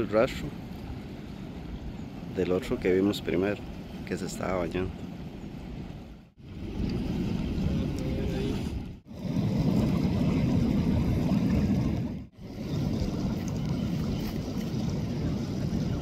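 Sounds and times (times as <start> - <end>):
surf and river water: 0.0 - 16.0
wind buffeting microphone: 0.0 - 16.0.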